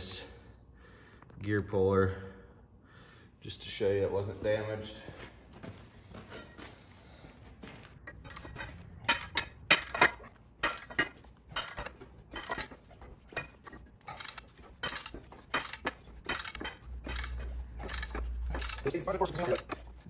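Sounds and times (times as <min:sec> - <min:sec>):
ratchet clicking: 0:08.1 - 0:20.0.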